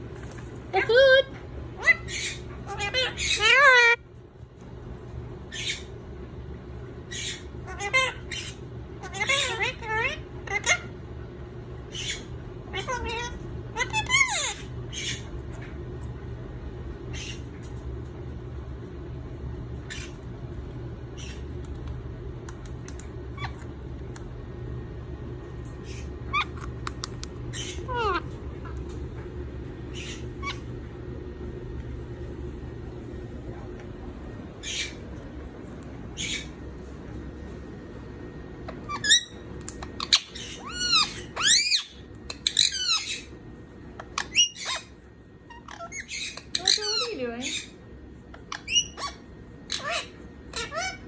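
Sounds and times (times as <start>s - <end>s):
steady low hum: 0.0s - 51.0s
parakeet chirps and scratchy calls: 0.2s - 4.2s, 5.4s - 6.0s, 7.0s - 11.0s, 11.8s - 16.0s, 16.9s - 17.8s, 19.7s - 20.3s, 21.0s - 21.9s, 22.5s - 24.4s, 25.4s - 31.0s, 34.5s - 37.0s, 38.6s - 51.0s.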